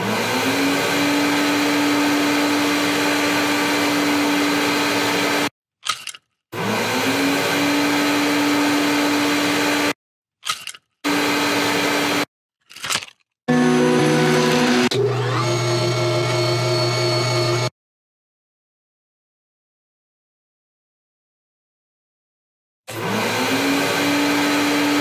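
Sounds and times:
vacuum cleaner motor whine: 0:00.0 - 0:05.5, 0:06.6 - 0:10.0, 0:11.1 - 0:12.3, 0:13.5 - 0:17.7, 0:22.9 - 0:25.0.

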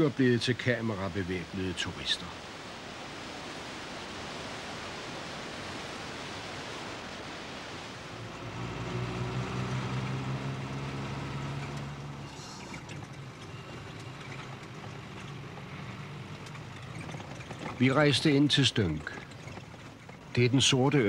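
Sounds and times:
water rushing in rapids: 0:00.0 - 0:21.0
motorcycle engine running: 0:08.1 - 0:21.0.

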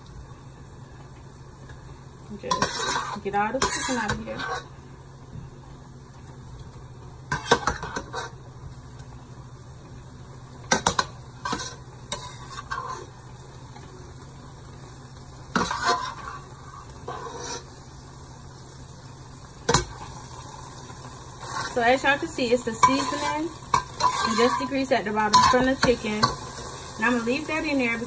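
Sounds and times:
metal spatula scraping skillet: 0:02.4 - 0:04.7, 0:10.9 - 0:13.1, 0:15.6 - 0:17.8, 0:21.4 - 0:21.8, 0:22.6 - 0:26.4.

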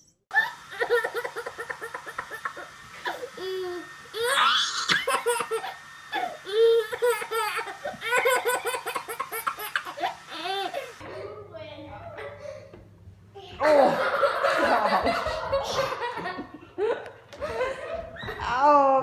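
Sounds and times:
baby laughing: 0:00.3 - 0:11.0.

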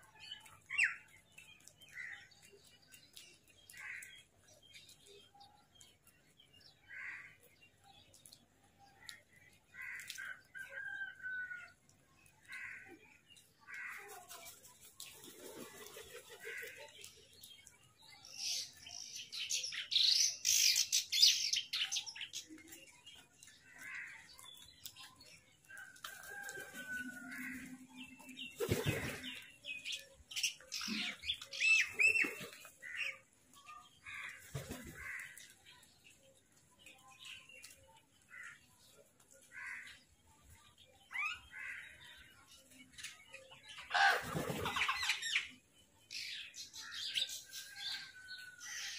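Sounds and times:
wingbeats fluttering: 0:14.0 - 0:17.1, 0:28.5 - 0:29.4.

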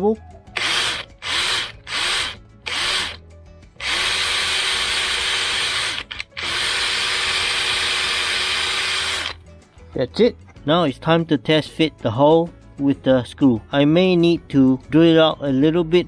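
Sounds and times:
cordless drill boring into wood: 0:00.6 - 0:03.2, 0:03.8 - 0:09.4.

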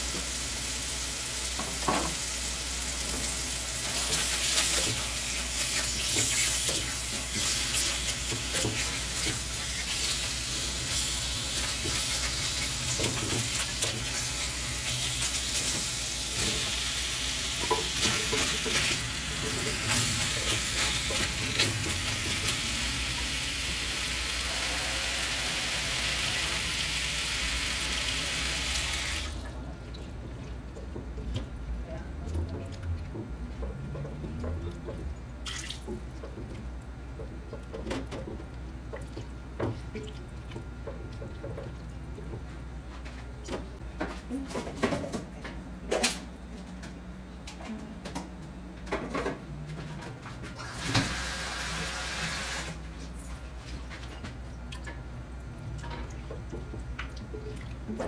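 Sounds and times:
food sizzling in a pan: 0:13.5 - 0:29.2.

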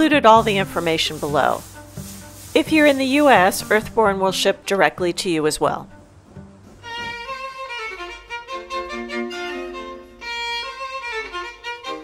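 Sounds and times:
violin melody: 0:06.0 - 0:12.0.

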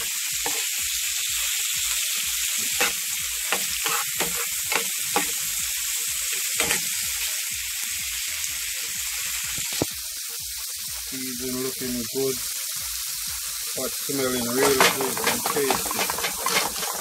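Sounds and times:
vegetables sizzling in frying pan: 0:00.0 - 0:17.0
metal spoon scraping pan: 0:00.4 - 0:00.7, 0:02.6 - 0:05.5, 0:06.3 - 0:07.0, 0:14.3 - 0:17.0.

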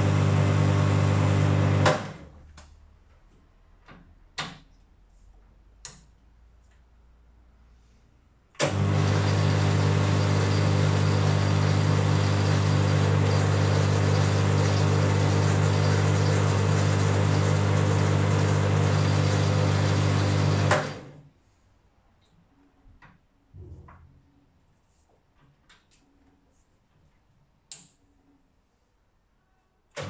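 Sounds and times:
metal lathe running: 0:08.6 - 0:21.0.

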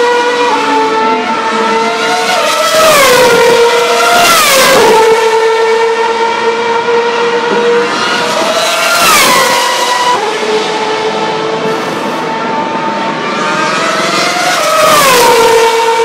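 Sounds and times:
race car engines: 0:00.0 - 0:16.0
race car passing by: 0:00.0 - 0:16.0.

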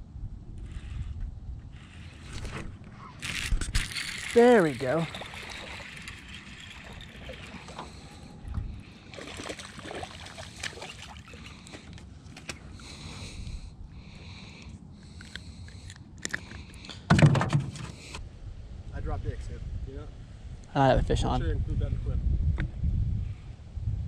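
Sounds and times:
fishing reel cranking: 0:03.2 - 0:08.2
fish splashing: 0:03.2 - 0:08.3, 0:08.9 - 0:12.0.

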